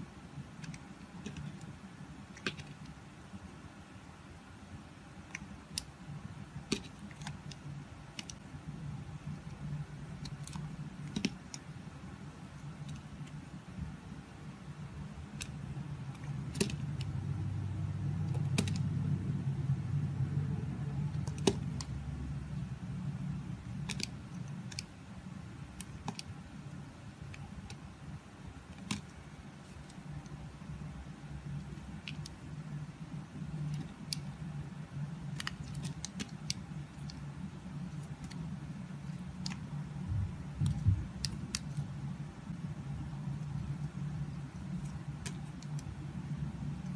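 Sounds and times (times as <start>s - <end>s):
steady low hum: 0.0s - 46.9s
soap crackling and snapping: 23.8s - 24.9s, 28.7s - 29.2s, 35.3s - 37.2s, 40.6s - 41.9s.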